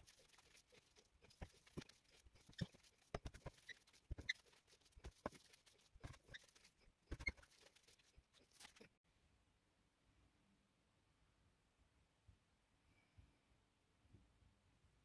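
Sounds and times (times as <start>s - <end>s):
squelching of mixture shaped by hand: 0.0s - 9.0s.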